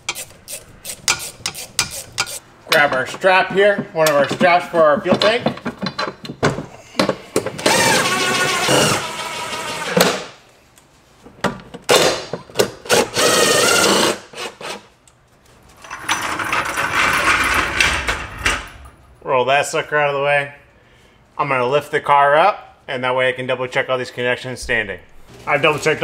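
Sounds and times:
cordless power tool driving bolts: 7.4s - 10.2s, 11.9s - 14.8s.

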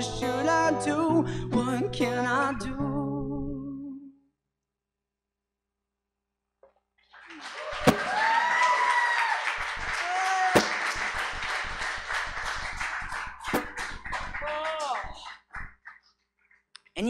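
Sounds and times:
audience applauding and cheering: 7.1s - 16.1s
whoops: 7.3s - 10.8s.

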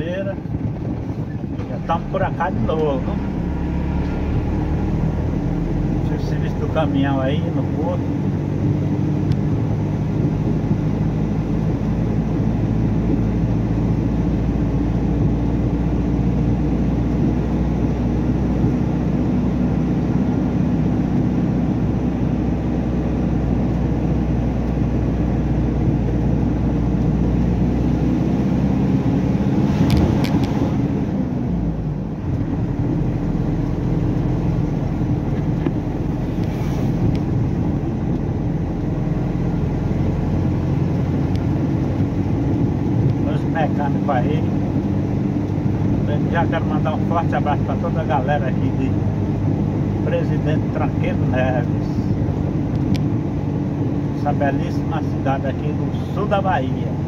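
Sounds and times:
truck passing: 1.2s - 12.6s, 17.7s - 43.2s.

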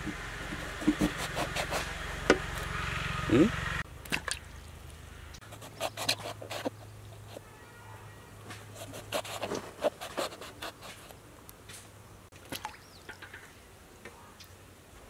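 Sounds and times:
knife cutting vegetables: 0.8s - 1.9s, 5.4s - 7.4s, 8.7s - 11.1s.

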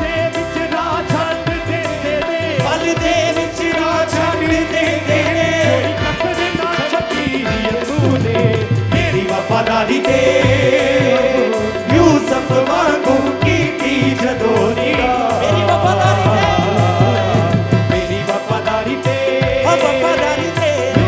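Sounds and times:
steady drum beat: 0.0s - 21.0s
melodic line: 4.6s - 18.0s.

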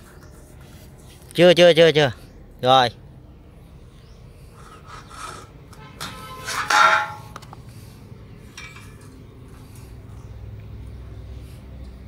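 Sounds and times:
steel pieces clanking: 5.0s - 7.4s
light metal clink: 8.5s - 9.2s.

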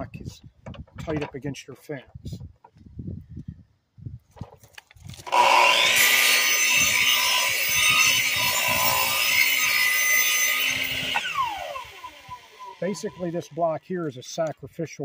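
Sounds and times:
saw blade cutting wood: 5.2s - 13.7s
miter saw motor whine: 5.3s - 13.6s.

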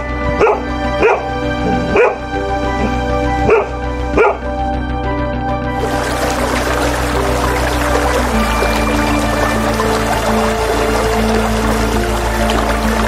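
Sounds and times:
background music: 0.0s - 13.0s
dog barking: 0.4s - 2.2s, 3.4s - 4.5s.

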